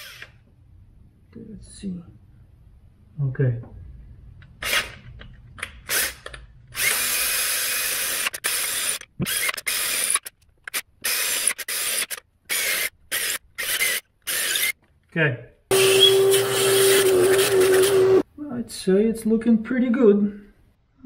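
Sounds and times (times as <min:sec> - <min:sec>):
cordless drill bursts: 0:06.8 - 0:10.3, 0:11.0 - 0:14.8, 0:15.7 - 0:18.2.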